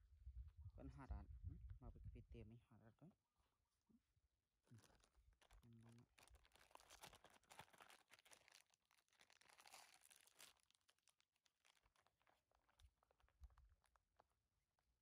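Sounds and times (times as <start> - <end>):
plastic wrapper crinkling: 4.7 - 14.4.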